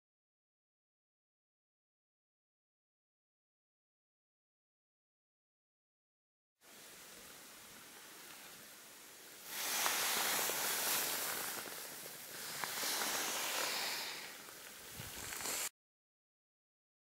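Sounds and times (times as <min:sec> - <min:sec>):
grass and leaves rustling: 0:06.7 - 0:15.7.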